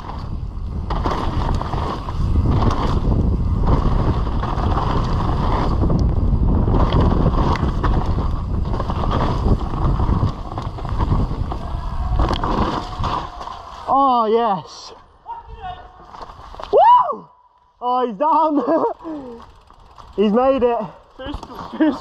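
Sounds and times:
wind buffeting microphone: 0:00.0 - 0:13.7
mountain bike rolling on dirt: 0:00.0 - 0:14.8, 0:16.0 - 0:16.7, 0:18.1 - 0:22.0.

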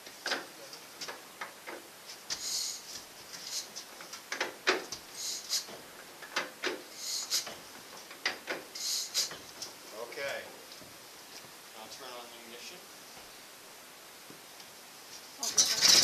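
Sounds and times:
engine hissing strokes: 0:02.4 - 0:03.8, 0:05.1 - 0:05.8, 0:06.9 - 0:07.6, 0:08.7 - 0:09.4
hand crank clicks and clunks: 0:15.5 - 0:16.0.

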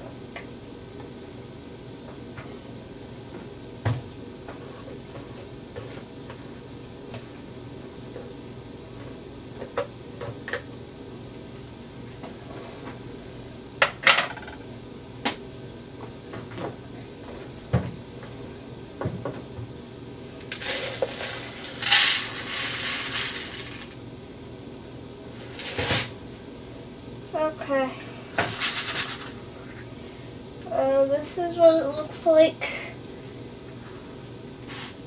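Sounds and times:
dry rice pouring: 0:20.5 - 0:23.9.

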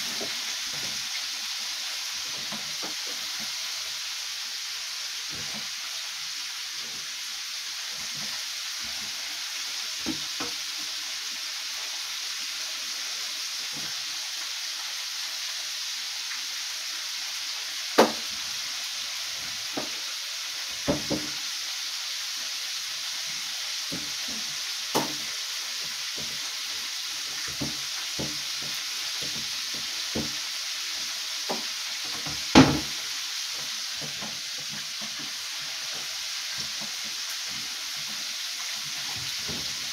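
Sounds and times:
chicken sizzling in hot oil: 0:00.0 - 0:39.9.

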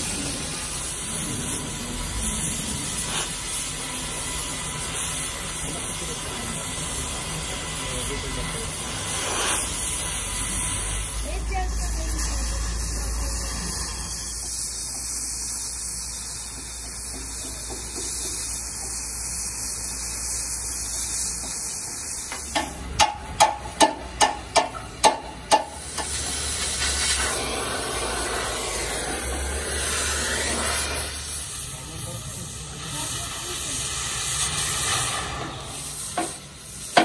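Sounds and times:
cutting torch hissing: 0:00.0 - 0:37.0
sharp metallic knocks: 0:22.6 - 0:26.1.

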